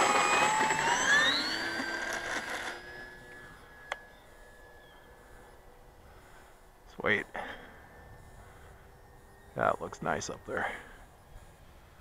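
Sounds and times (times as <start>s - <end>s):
model plane motor whining: 0.0s - 5.8s.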